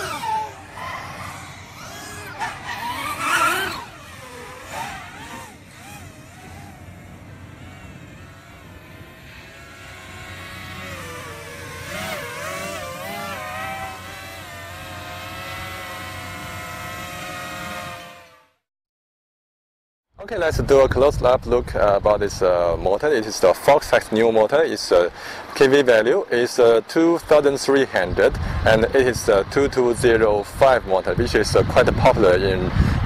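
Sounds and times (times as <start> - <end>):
drone motors whining: 0.0 - 18.6.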